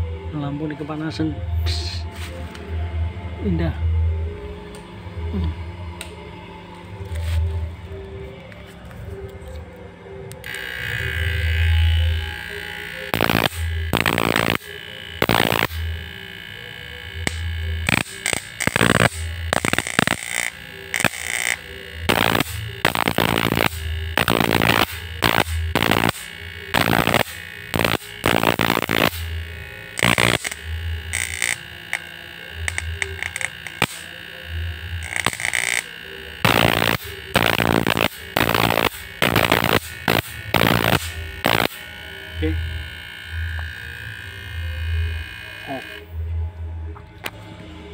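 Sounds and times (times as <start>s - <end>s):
electrical sparks crackling: 10.4s - 45.9s.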